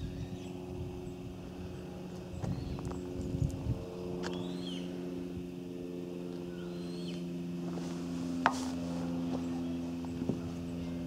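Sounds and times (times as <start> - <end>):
birds chirping faintly: 0.0 - 5.1, 6.2 - 7.3
boat engine idling: 6.2 - 11.0.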